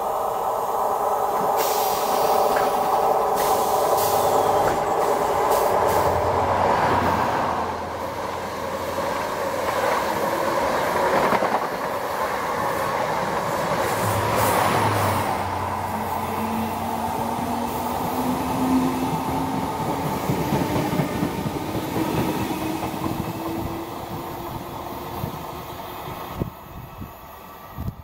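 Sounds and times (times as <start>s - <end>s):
electric train pulling away: 0.0s - 11.5s
train wheel noise: 0.0s - 27.0s
passing train: 0.0s - 28.0s.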